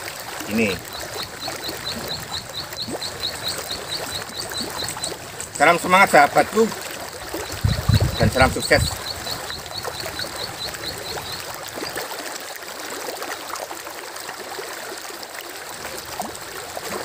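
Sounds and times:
river water rushing: 0.0s - 17.0s
high chirp: 0.7s - 5.6s.

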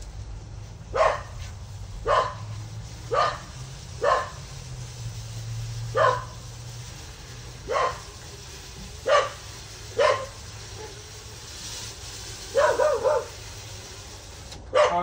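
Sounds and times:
dog barking: 0.9s - 1.3s, 2.0s - 2.4s, 3.1s - 4.4s, 5.9s - 6.4s, 7.7s - 8.1s, 9.0s - 9.4s, 10.0s - 11.0s, 12.5s - 13.3s, 14.7s - 15.0s.

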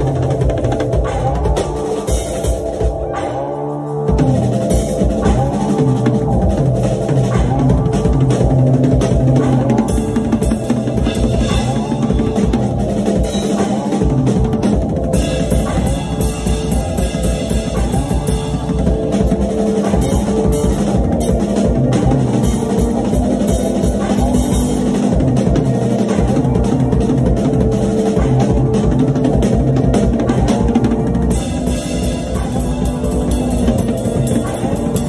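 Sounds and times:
drum kit playing rapidly: 0.0s - 35.0s
steady pitched instrument notes: 0.0s - 35.0s.

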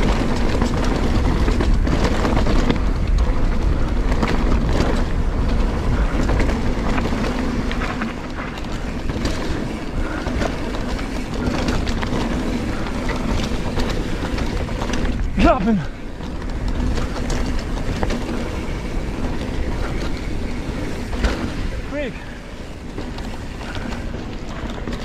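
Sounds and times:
bike rattling and knocking: 0.0s - 25.0s
mountain bike tyres on dirt trail: 0.0s - 25.0s.

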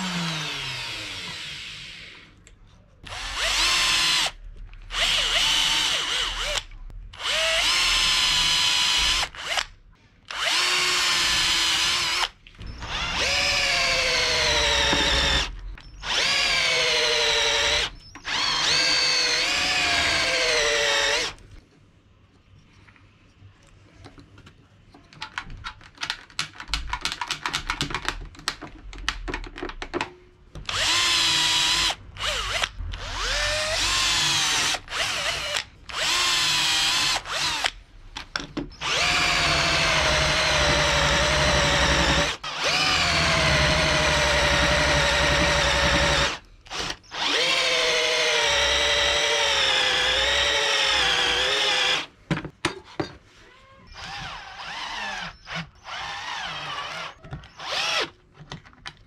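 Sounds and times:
cordless drill whine: 0.0s - 2.2s, 10.3s - 21.4s, 30.7s - 37.7s, 38.8s - 52.1s, 53.9s - 58.1s.

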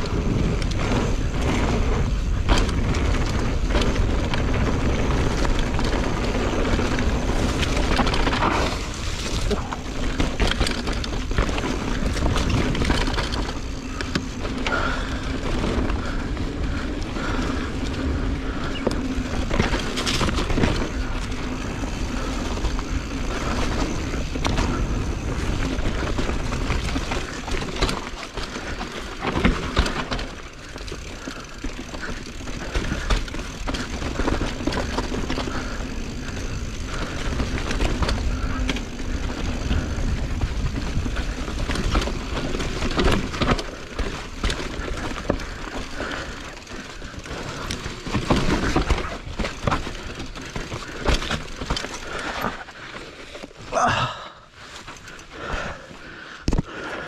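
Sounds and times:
bike rattling and knocking: 0.0s - 57.0s
bike tyres rolling on dirt: 0.0s - 57.0s.

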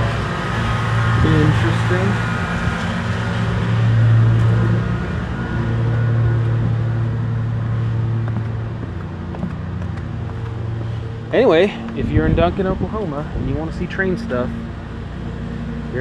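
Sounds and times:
mower engine running: 0.0s - 16.0s
wind rumbling on microphone: 6.3s - 14.1s.

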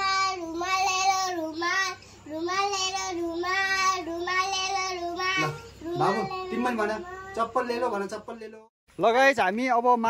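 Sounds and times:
child calling out sing-song: 2.4s - 7.5s.

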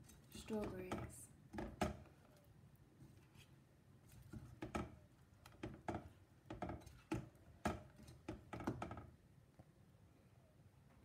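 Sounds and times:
spatula scraping a saucepan: 6.5s - 8.6s.

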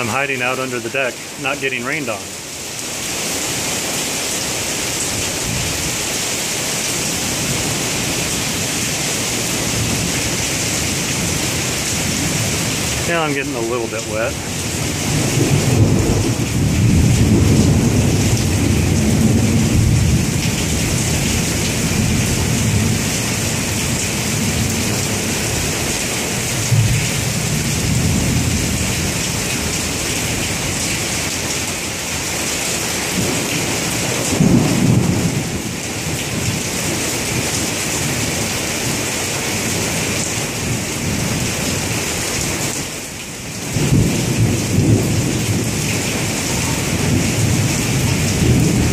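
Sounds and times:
heavy rain splashing on pavement: 0.0s - 48.9s
rolling thunder: 14.8s - 23.1s, 33.1s - 37.5s, 43.7s - 48.9s.

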